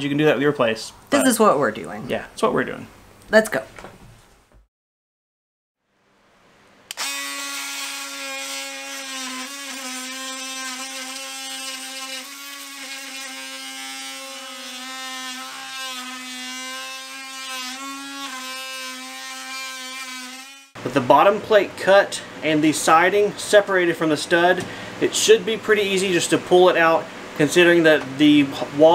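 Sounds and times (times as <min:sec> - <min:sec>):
oscillating multi-tool cutting wood: 0:06.9 - 0:20.8.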